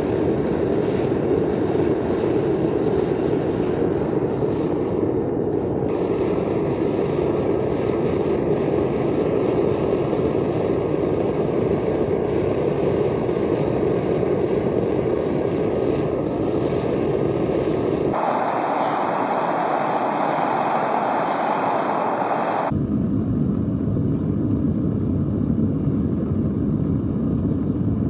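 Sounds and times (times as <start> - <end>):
propane burner rushing: 0.0 - 22.7.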